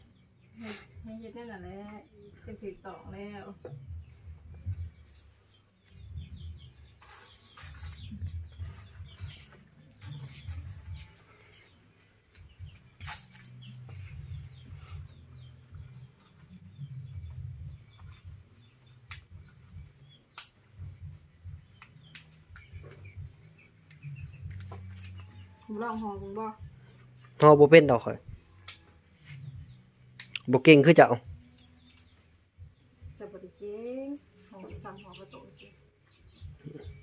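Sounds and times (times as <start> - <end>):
faint bird chirps: 0.0 - 37.0
banana leaves rustling and crackling: 6.9 - 11.6, 12.3 - 14.3, 23.8 - 26.0.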